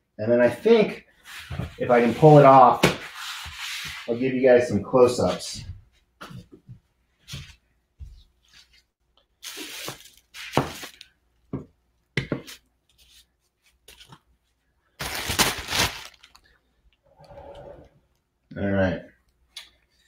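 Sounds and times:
packaging rustling and crinkling: 0:09.4 - 0:11.1, 0:15.0 - 0:16.6.

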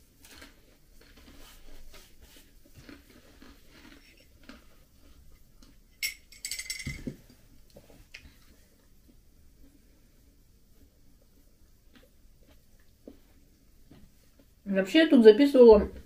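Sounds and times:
eating at a table: 0:00.0 - 0:14.6.

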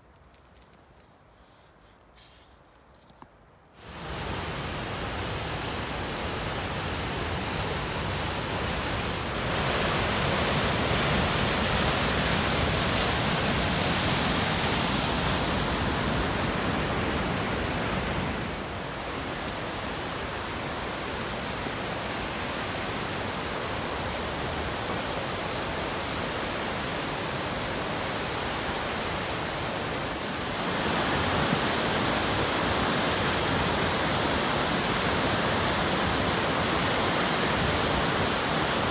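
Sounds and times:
waterfall rushing: 0:03.8 - 0:38.9.

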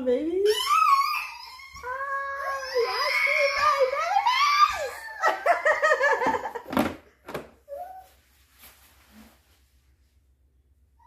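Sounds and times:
woman squealing: 0:00.4 - 0:05.5
woman laughing: 0:04.8 - 0:06.7.

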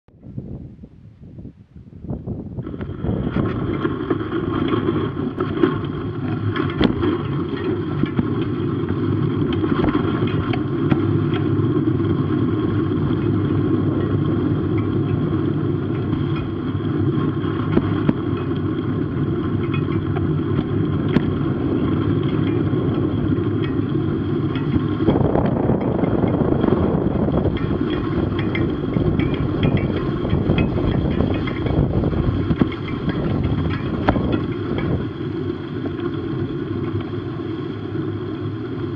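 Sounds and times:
wind on camera: 0:00.1 - 0:38.9
tyre noise on snow: 0:02.3 - 0:19.6
motorcycle engine: 0:02.8 - 0:38.9.

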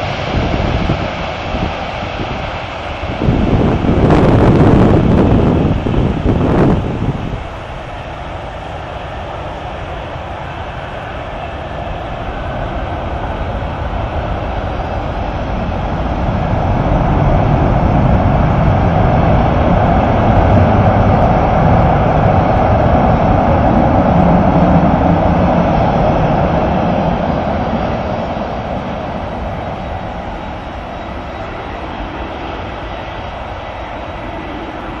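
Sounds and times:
jet engine roar: 0:00.0 - 0:35.0.

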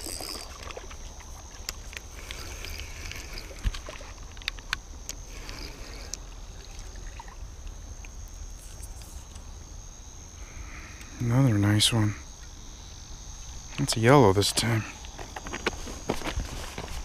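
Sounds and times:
water splashing and sloshing: 0:00.0 - 0:08.8
night insects trilling: 0:00.0 - 0:17.0.

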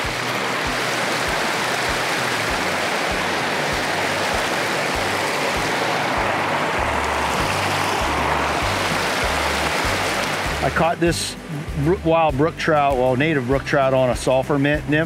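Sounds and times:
soft low thumping beat: 0:00.0 - 0:13.2
stream running over rocks: 0:00.0 - 0:15.0
steady bass note: 0:06.2 - 0:15.0.

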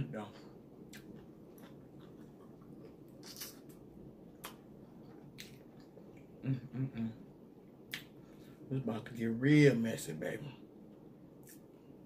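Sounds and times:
person chewing and smacking: 0:00.8 - 0:06.4, 0:07.8 - 0:08.2, 0:11.4 - 0:11.8
person humming mm: 0:06.4 - 0:07.2.

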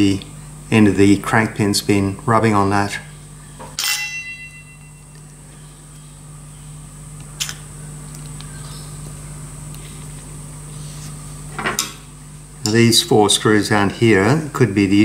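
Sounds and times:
low room hum: 0:00.0 - 0:15.0
sharp click of metal parts: 0:03.8 - 0:04.3.

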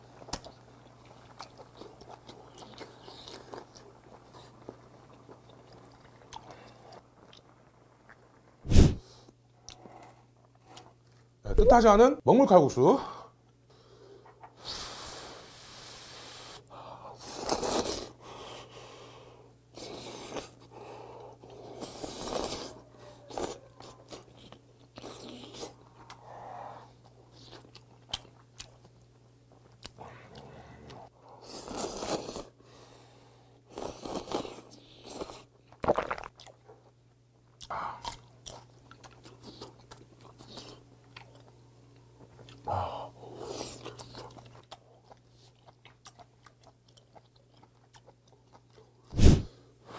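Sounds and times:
wet chewing: 0:21.4 - 0:32.5, 0:37.6 - 0:42.7, 0:43.3 - 0:49.0.

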